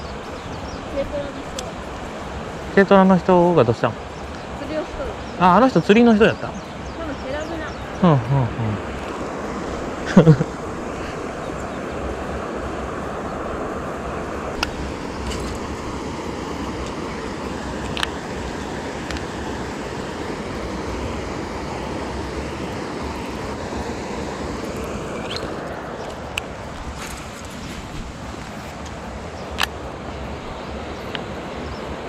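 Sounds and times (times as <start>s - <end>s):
outdoor wind: 0.0s - 32.0s
sharp light clicks: 28.8s - 29.8s.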